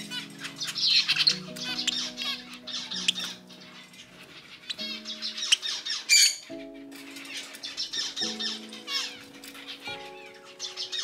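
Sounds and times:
budgerigar chirping: 0.0s - 6.9s
background music of held notes: 0.0s - 11.0s.

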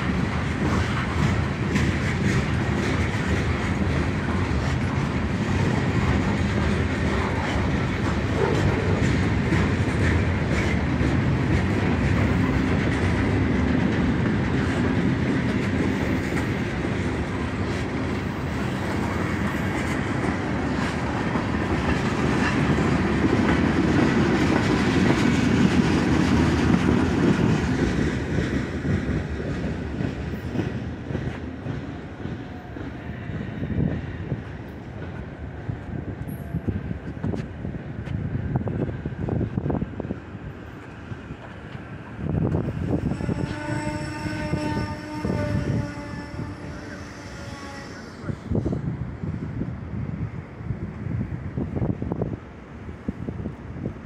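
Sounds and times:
freight train cars rolling past: 0.0s - 54.0s.

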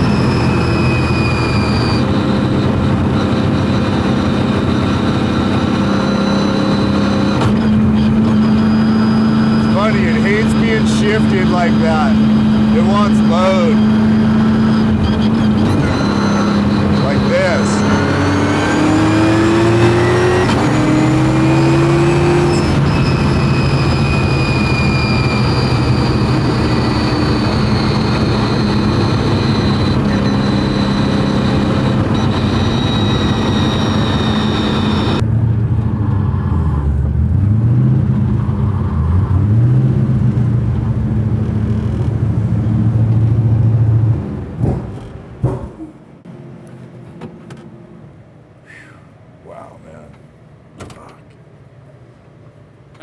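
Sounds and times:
car engine running: 0.0s - 38.8s
high turbo whine: 0.0s - 50.3s.

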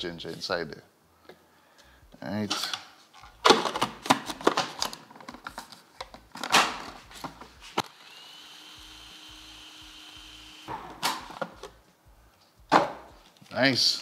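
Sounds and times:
food processor motor running: 7.9s - 10.7s.

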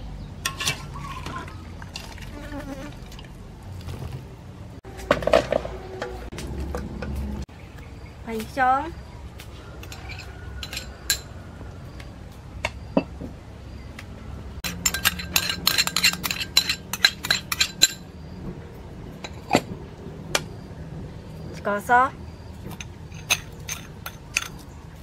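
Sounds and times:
spoon clinking on ceramic bowl: 14.6s - 18.0s.

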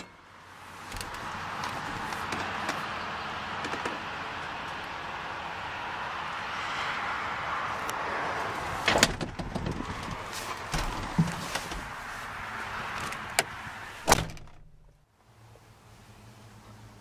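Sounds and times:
handling knocks and clicks: 0.9s - 3.0s, 3.6s - 4.8s, 8.8s - 12.0s
steady outside hiss: 10.2s - 17.0s
car door thumping shut: 14.1s - 14.7s.

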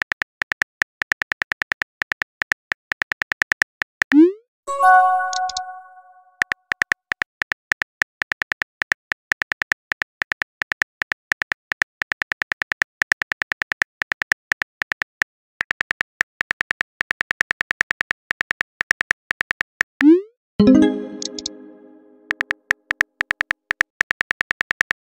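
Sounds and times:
phone keyboard typing clicks: 5.0s - 6.0s, 20.8s - 22.5s.

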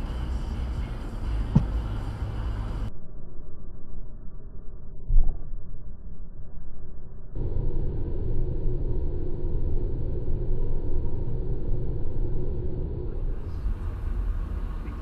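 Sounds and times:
road and engine rumble in car: 0.0s - 2.9s, 7.4s - 15.0s.

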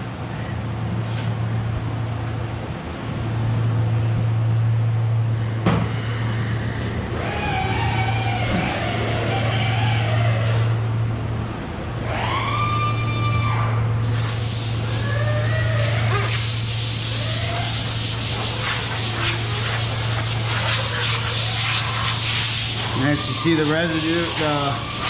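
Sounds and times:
short rising whine: 1.9s - 25.0s
compressed air gun hissing: 14.0s - 25.0s.

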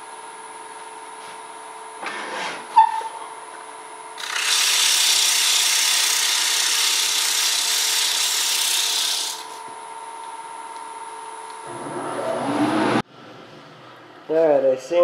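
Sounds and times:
lathe humming: 4.2s - 9.6s
sandpaper hissing on spinning wood: 4.2s - 9.6s.

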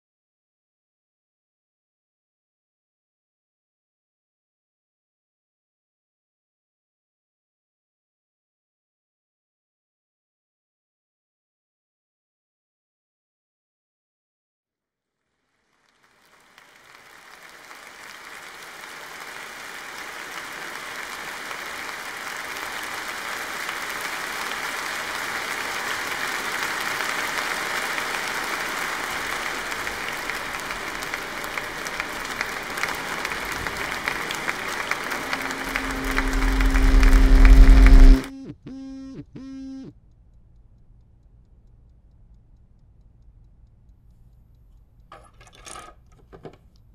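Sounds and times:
large audience applauding: 15.6s - 38.3s
low droning tone with deep rumble: 35.4s - 39.1s.

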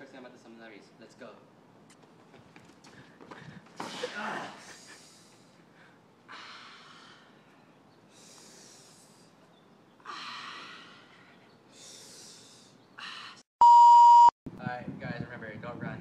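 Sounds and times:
heavy hissy breathing: 2.9s - 9.4s, 10.1s - 13.4s
electronic beep: 13.6s - 14.3s.

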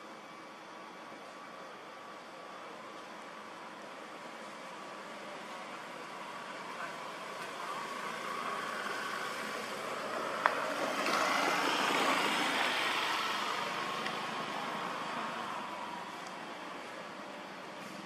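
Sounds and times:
vehicle passing by: 7.2s - 16.2s.

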